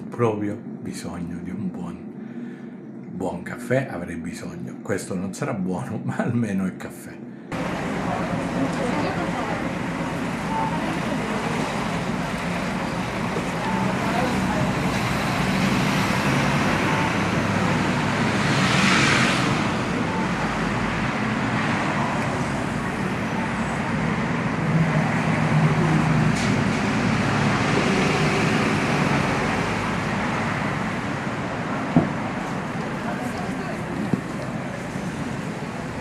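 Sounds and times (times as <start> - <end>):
road traffic hum: 7.2 - 36.0
vehicle passing close: 7.5 - 36.0.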